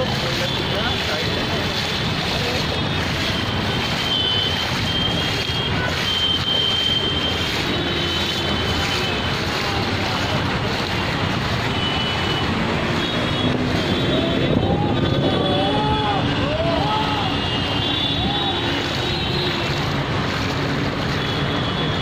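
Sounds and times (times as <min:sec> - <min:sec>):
traffic on a flooded road: 0:00.0 - 0:22.0.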